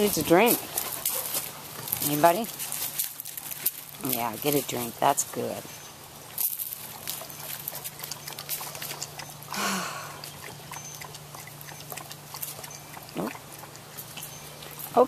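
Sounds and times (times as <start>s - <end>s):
dog lapping water: 6.2s - 15.0s.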